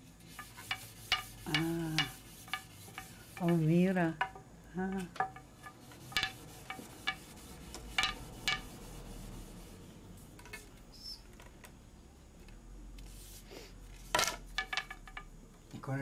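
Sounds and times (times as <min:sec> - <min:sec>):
wooden loom bars clacking: 0:00.3 - 0:08.7, 0:14.1 - 0:15.3.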